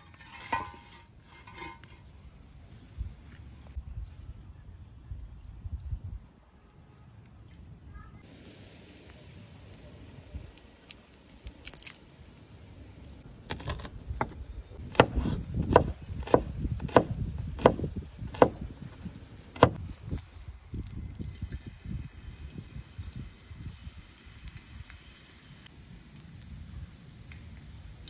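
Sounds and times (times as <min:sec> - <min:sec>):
garlic peeling crackles and rustles: 0:00.1 - 0:14.8, 0:19.8 - 0:22.0
cleaver chopping on wooden board: 0:13.6 - 0:18.6, 0:19.6 - 0:19.8.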